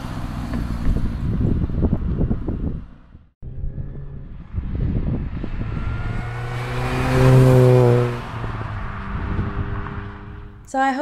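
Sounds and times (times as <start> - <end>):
car driving past: 3.4 - 10.7.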